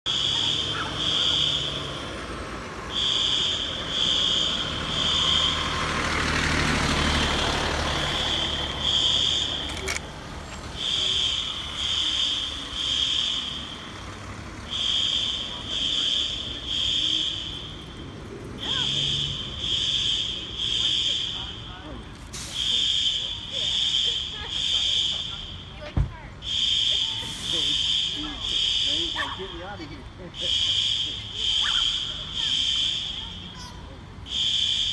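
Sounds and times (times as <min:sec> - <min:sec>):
fire alarm beeping: 0:00.1 - 0:02.0, 0:02.9 - 0:05.7, 0:08.2 - 0:09.7, 0:10.8 - 0:13.9, 0:14.6 - 0:18.0, 0:18.6 - 0:21.8, 0:22.5 - 0:25.8, 0:26.4 - 0:29.6, 0:30.3 - 0:33.6, 0:34.2 - 0:34.9
fire engine motor running: 0:00.1 - 0:34.9.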